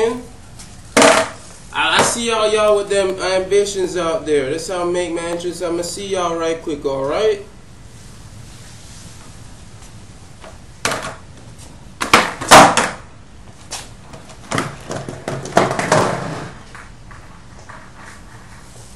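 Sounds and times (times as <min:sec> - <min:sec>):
skateboard clattering on concrete: 0:01.0 - 0:02.2, 0:10.8 - 0:11.2, 0:12.0 - 0:13.1, 0:13.7 - 0:18.6.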